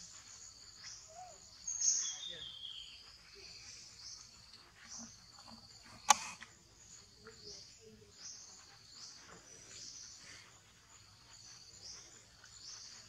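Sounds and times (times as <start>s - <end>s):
insects chorus: 0.0s - 13.0s.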